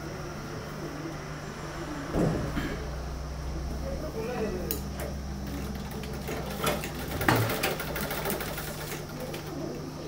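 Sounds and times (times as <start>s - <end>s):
sewing machine clattering: 5.4s - 9.6s.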